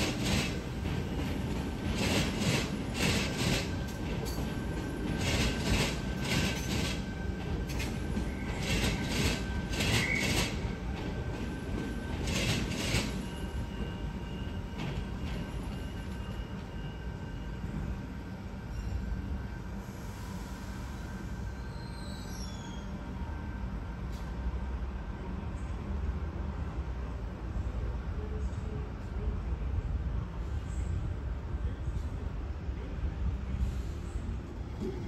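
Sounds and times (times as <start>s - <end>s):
train wheels clacking: 0.0s - 13.9s
train rumble: 0.0s - 35.0s
faint wheel squeal: 9.8s - 10.6s, 20.9s - 23.1s.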